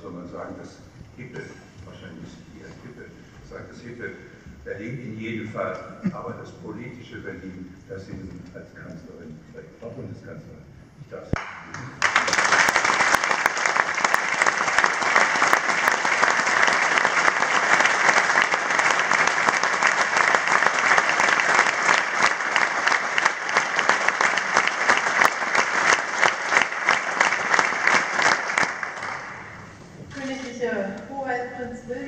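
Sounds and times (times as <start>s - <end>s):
audience applauding: 11.4s - 29.8s.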